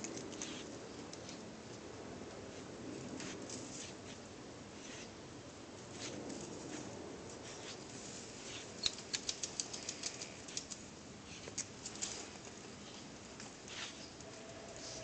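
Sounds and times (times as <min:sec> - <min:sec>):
clicks and taps on concrete: 0:08.8 - 0:10.8.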